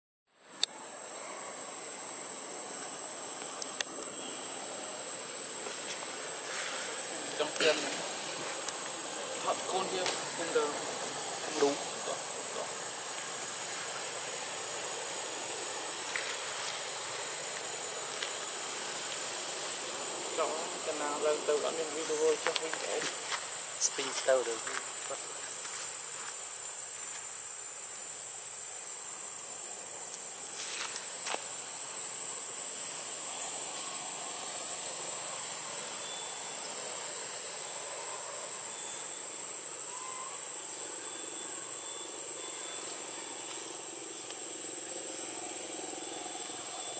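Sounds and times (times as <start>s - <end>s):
even hiss: 0.4s - 46.9s
high-pitched insect drone: 0.6s - 46.9s.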